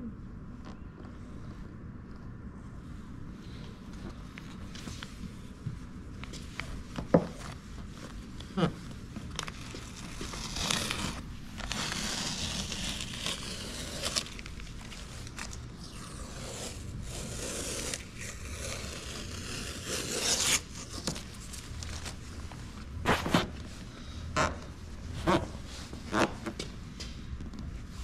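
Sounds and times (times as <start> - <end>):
masking tape ripping and rubbing: 8.6 - 22.2.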